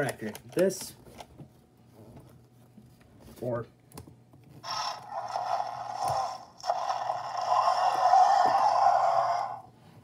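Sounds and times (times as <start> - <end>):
toy dinosaur roaring: 4.6 - 9.7.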